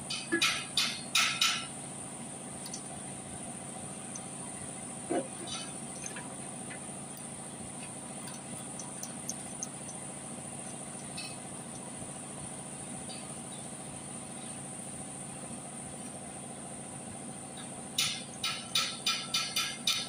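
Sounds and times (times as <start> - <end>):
steady background hum: 0.0 - 20.0
faint metallic clicks of timing chain: 5.6 - 12.1.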